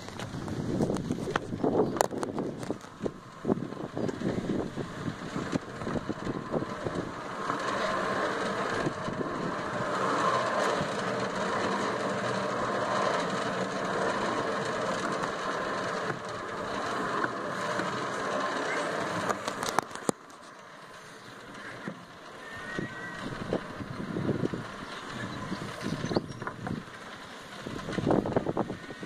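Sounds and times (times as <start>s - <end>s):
roundabout spinning rumble: 0.0s - 29.0s.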